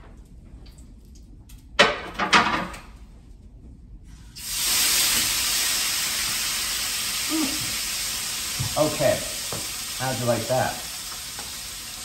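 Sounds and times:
water running from tap: 4.4s - 12.0s.

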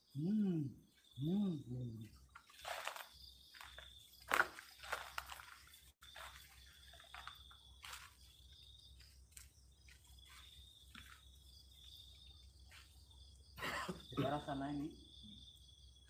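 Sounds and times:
insects trilling: 0.0s - 16.0s
footsteps shuffling on earth: 2.4s - 13.1s.

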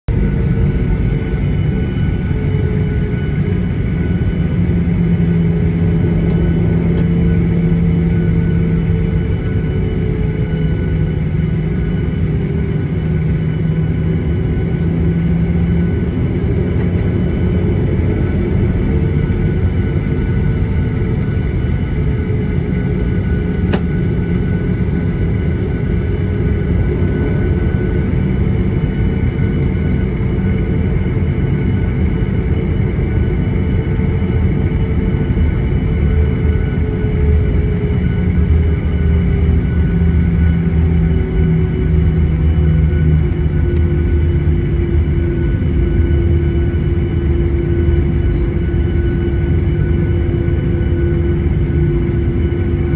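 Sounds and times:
low cabin rumble: 0.1s - 34.3s
thin engine whine: 0.1s - 52.9s.

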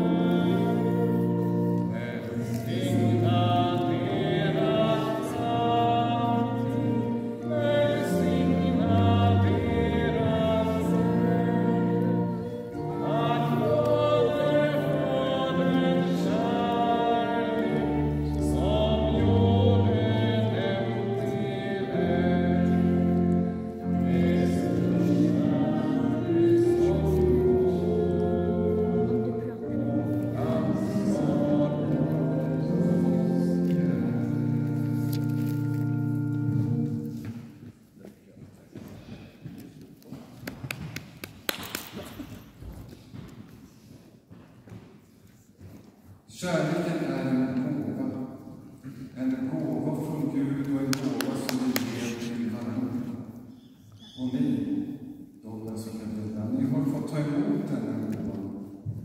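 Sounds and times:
wavering singing voice: 0.0s - 34.7s
held accompaniment chords: 0.0s - 37.7s.

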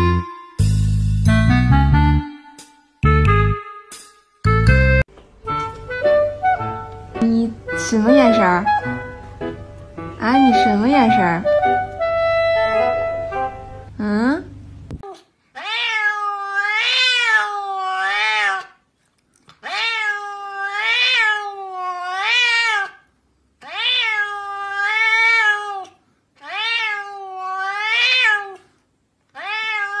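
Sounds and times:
cat meowing: 15.0s - 18.8s, 19.6s - 28.7s, 29.3s - 30.0s.

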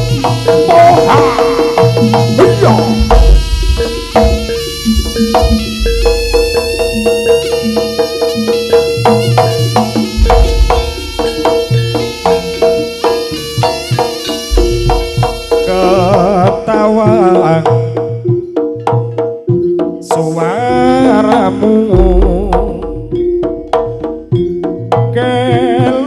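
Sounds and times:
deep gong stroke: 0.0s - 7.1s, 10.1s - 13.0s
held note: 0.0s - 18.2s
fast hand drums: 0.0s - 26.0s
struck metal notes: 0.0s - 26.0s
wavering melody: 0.0s - 26.0s.

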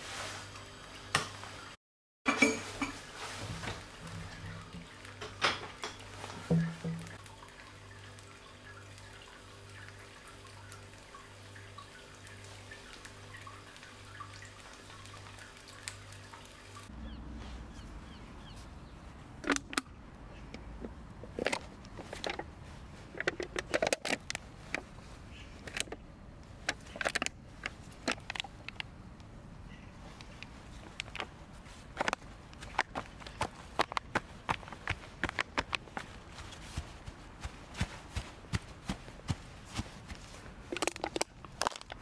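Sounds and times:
eggs sizzling in a pan: 2.5s - 16.9s
drinks can crunching: 40.7s - 42.0s.

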